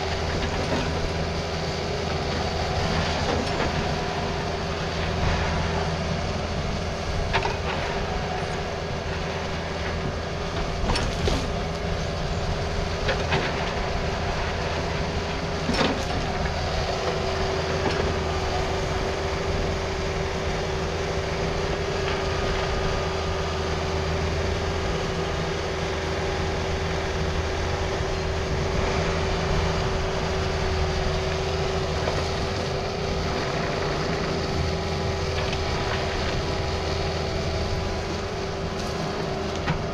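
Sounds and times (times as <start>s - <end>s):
excavator diesel engine whining: 0.0s - 39.9s.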